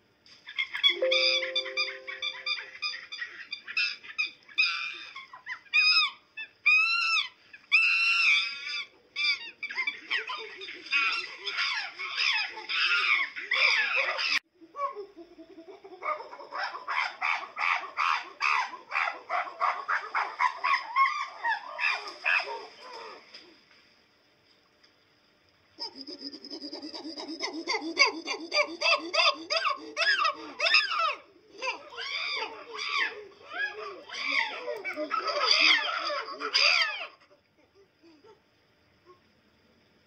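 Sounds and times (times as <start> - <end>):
rapid animal chattering: 25.8 - 34.6
high-pitched animal squeals: 25.8 - 37.3.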